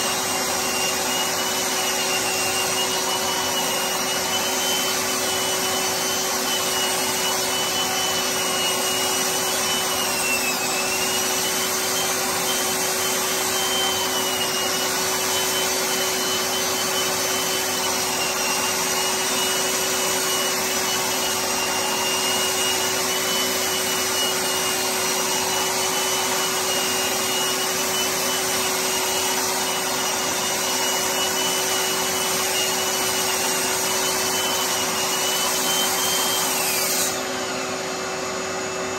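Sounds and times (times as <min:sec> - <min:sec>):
electric sander whining: 0:00.0 - 0:38.8.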